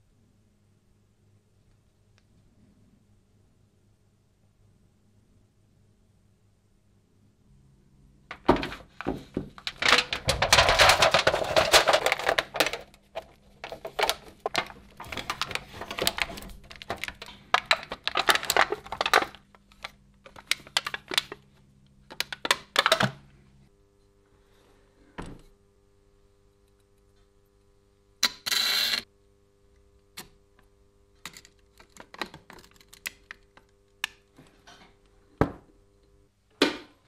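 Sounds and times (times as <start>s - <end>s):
metal foil crinkling: 9.6s - 21.4s.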